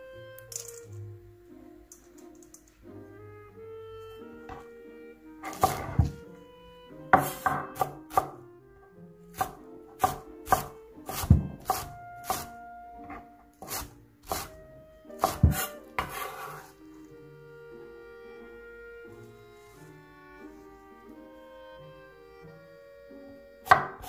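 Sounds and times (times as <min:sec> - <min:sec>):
soft background music: 0:00.0 - 0:24.0
knife chopping on cutting board: 0:05.4 - 0:06.2, 0:07.2 - 0:08.4, 0:09.3 - 0:14.6, 0:15.2 - 0:16.6, 0:23.7 - 0:24.0.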